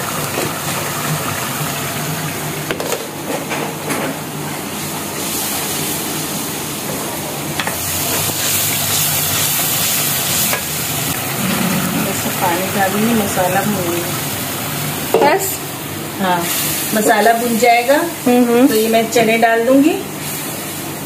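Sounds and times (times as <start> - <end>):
masala sizzling in a wok: 4.4 - 21.0.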